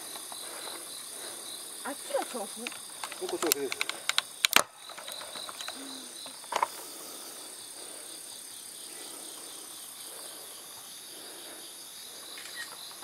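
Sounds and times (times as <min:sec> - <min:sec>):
crickets chirring: 0:00.0 - 0:13.0
pulsing insect chirp: 0:00.0 - 0:13.0
sharp clicks or knocks: 0:02.6 - 0:05.8.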